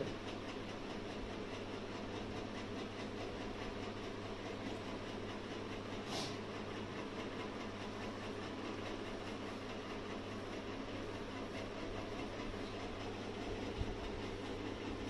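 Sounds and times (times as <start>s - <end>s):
short hiss: 6.1s - 6.4s.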